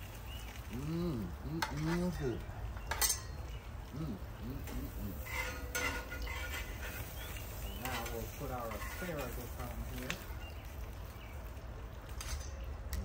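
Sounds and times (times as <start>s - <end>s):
metal tongs clinking: 1.6s - 3.4s, 4.6s - 7.0s.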